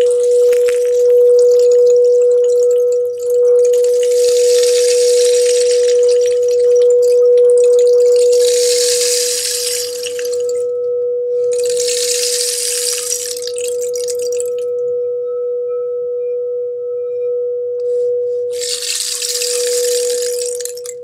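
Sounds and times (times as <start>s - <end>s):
singing bowl steady tone: 0.0s - 21.0s
rain stick trickling hiss: 3.8s - 6.6s, 8.0s - 10.6s, 11.6s - 14.4s, 18.6s - 21.0s.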